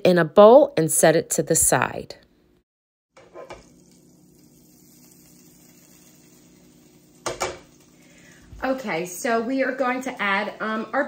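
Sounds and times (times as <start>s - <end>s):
faint steady hum: 3.4s - 11.0s.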